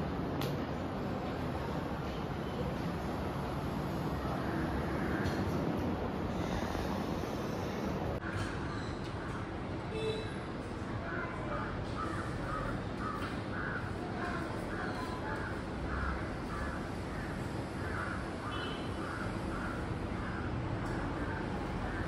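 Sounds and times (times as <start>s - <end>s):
steady background noise: 0.0s - 22.0s
crows cawing: 4.5s - 5.5s, 12.0s - 22.0s.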